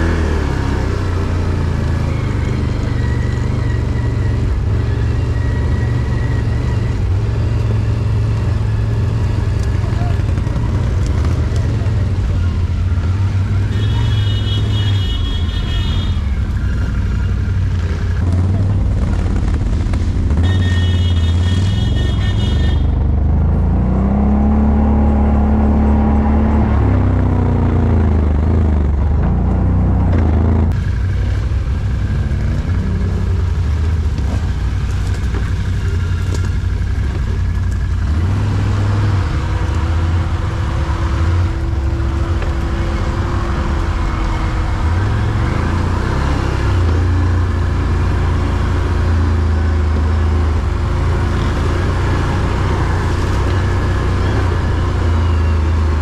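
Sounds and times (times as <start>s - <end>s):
quad bike engine revving: 0.0s - 16.0s, 35.7s - 56.0s.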